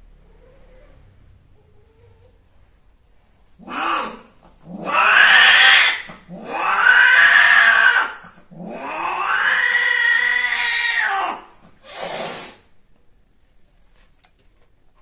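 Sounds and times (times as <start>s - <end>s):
cats yowling: 3.6s - 11.6s.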